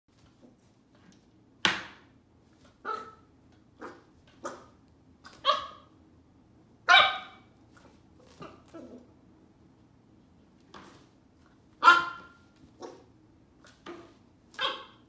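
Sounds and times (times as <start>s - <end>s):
puppy barking: 2.8s - 5.9s, 6.9s - 7.5s, 11.8s - 13.1s, 13.9s - 15.0s.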